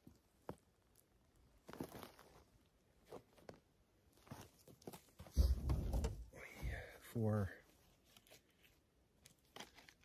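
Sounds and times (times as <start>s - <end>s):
person sitting down thump: 5.2s - 6.8s.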